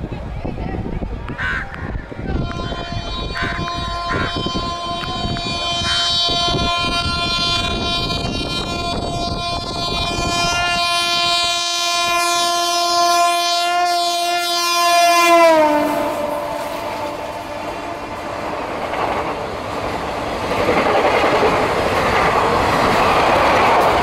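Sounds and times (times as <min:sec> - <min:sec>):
electric locomotive horn: 0:02.3 - 0:19.8
train wheels: 0:14.5 - 0:24.0.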